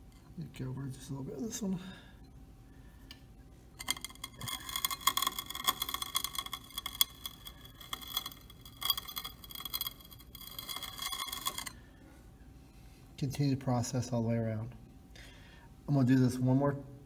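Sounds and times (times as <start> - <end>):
grinding wheel crunching: 3.8 - 11.8.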